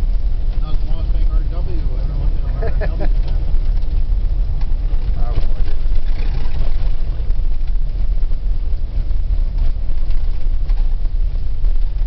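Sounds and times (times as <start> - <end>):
vehicle engine and road rumble: 0.0 - 12.0.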